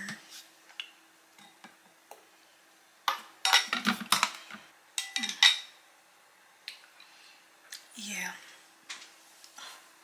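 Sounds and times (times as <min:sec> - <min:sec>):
kitchenware clinking and clattering: 0:03.1 - 0:05.8.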